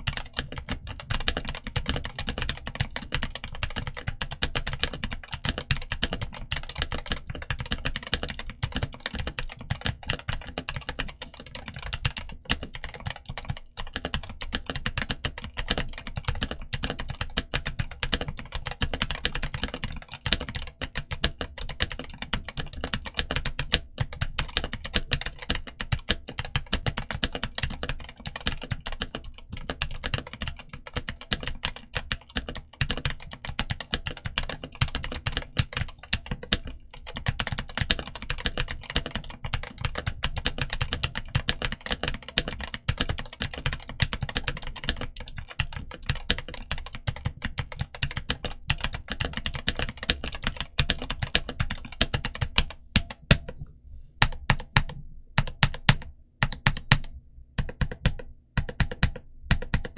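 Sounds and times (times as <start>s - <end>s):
mechanical keyboard typing: 0.0s - 53.6s, 54.2s - 59.9s.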